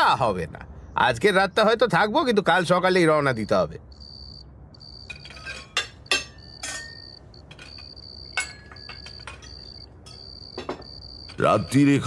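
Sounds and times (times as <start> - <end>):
cricket chirping: 3.0 - 12.0
cutlery clinking on plates: 5.1 - 11.8.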